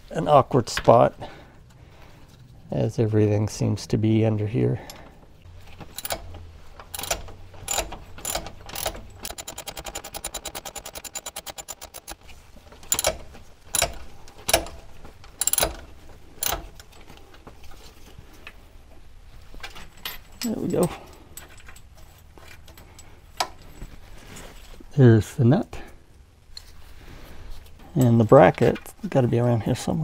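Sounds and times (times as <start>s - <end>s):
metal clicks and knocks: 5.7s - 17.2s
ratchet wrench ticking: 6.9s - 12.2s, 12.9s - 14.7s, 15.4s - 15.8s.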